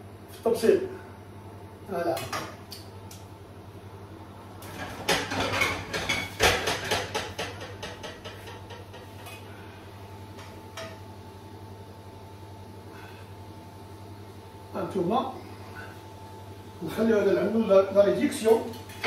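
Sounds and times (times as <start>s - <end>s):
steady low hum: 0.0s - 19.0s
crockery and cookware clattering: 4.6s - 9.4s.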